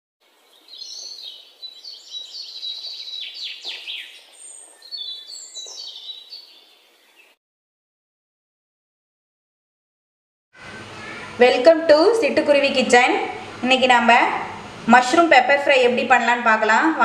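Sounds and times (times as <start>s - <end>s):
robin singing warbling song: 0.2s - 7.4s.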